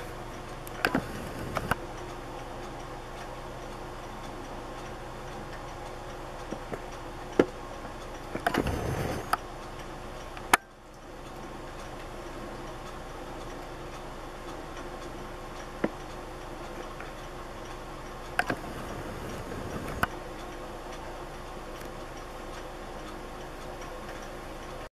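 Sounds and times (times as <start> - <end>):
soft regular ticking: 0.0 - 24.9
sharp clicks: 0.3 - 2.2, 8.2 - 9.4, 18.3 - 20.6.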